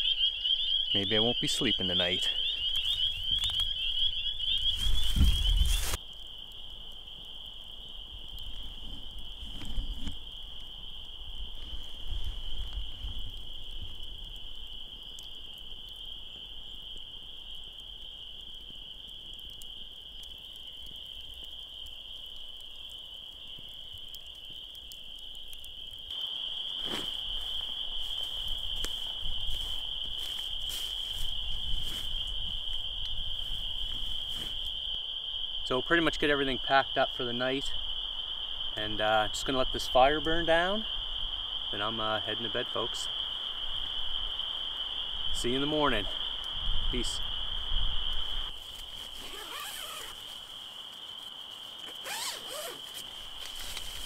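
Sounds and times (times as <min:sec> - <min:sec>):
frogs calling in chorus: 0:00.0 - 0:06.0.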